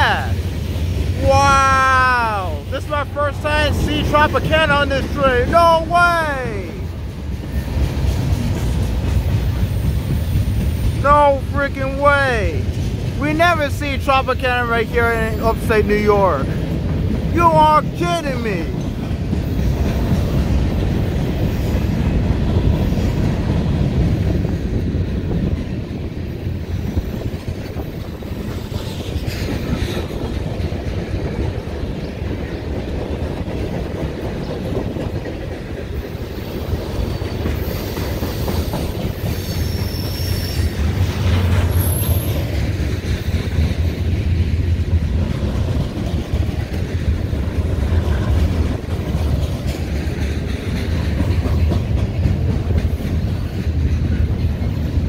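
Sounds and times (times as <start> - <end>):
freight cars rumbling on rails: 0.0 - 55.0
high wheel squeals: 36.4 - 41.0.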